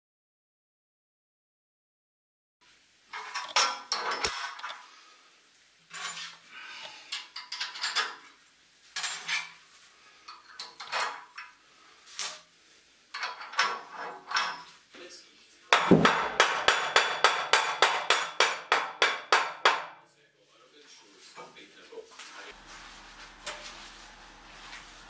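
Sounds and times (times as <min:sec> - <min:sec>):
bolts and nuts clinking on metal: 0:07.2 - 0:08.4, 0:10.3 - 0:11.5, 0:13.1 - 0:14.8.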